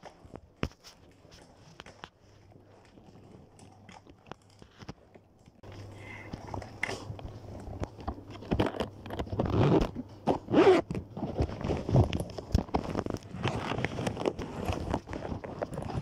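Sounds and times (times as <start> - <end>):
cloth rustling and scraping: 5.7 - 16.0.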